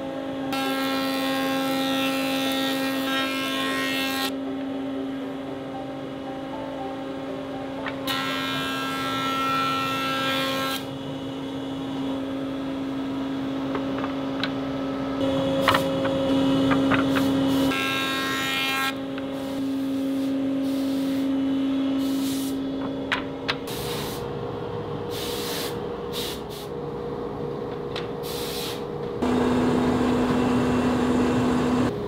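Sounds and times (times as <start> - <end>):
jointer humming: 29.2 - 32.0
loud cutting whine: 29.2 - 32.0.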